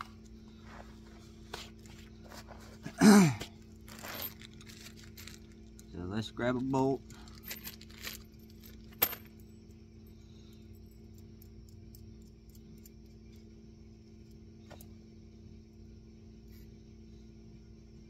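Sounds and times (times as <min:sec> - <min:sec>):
faint steady hum: 0:00.0 - 0:18.0
metal bolts clinking: 0:06.6 - 0:09.5.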